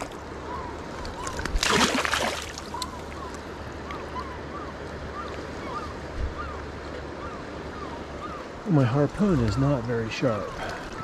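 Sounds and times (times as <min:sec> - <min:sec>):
river current rushing: 0:00.0 - 0:11.0.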